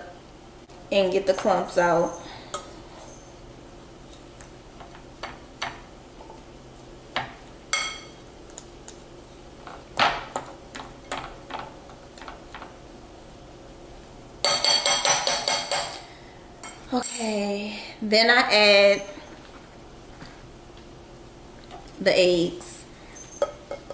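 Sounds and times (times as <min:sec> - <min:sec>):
fork clinking against glass bowl: 0:07.7 - 0:08.2.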